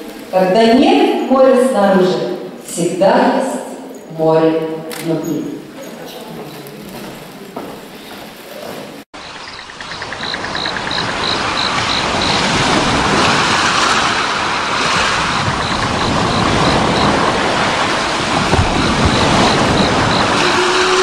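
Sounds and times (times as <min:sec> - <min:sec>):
faint high ticking: 0:09.2 - 0:12.4
sea waves: 0:09.2 - 0:21.0.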